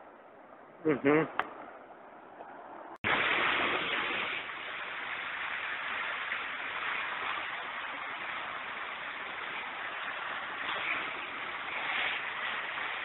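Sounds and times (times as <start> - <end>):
floodwater rushing and splashing: 3.0 - 13.0.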